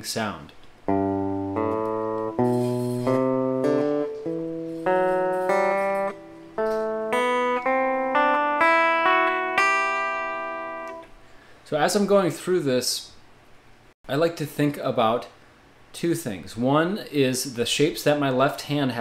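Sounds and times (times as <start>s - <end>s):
electric guitar playing a scale: 0.9s - 11.2s.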